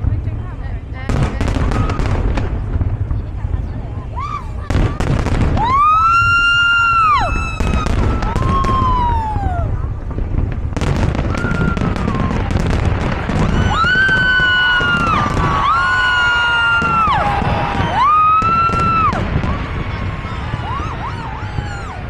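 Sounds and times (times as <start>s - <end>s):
low rumble: 0.0s - 15.9s
fireworks booms and crackling: 0.0s - 22.0s
fireworks whistles: 1.3s - 2.7s, 4.2s - 9.9s, 10.8s - 22.0s.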